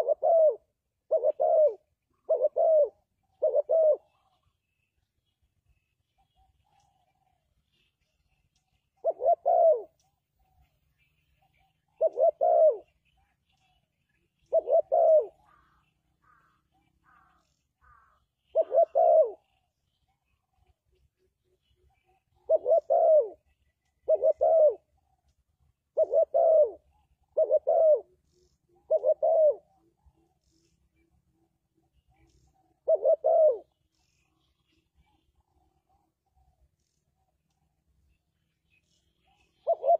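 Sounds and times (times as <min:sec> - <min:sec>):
dove cooing: 0:00.0 - 0:04.6, 0:09.0 - 0:10.0, 0:11.6 - 0:13.0, 0:14.4 - 0:19.6, 0:21.9 - 0:25.0, 0:25.8 - 0:31.1, 0:31.8 - 0:34.4, 0:39.2 - 0:39.9.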